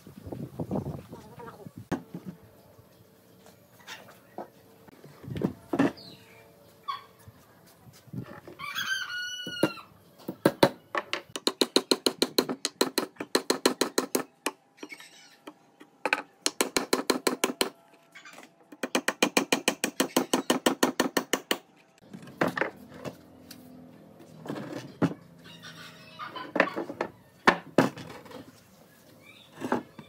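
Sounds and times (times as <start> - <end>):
hammer driving nails into logs: 10.4 - 14.6, 16.0 - 17.8, 18.7 - 21.6.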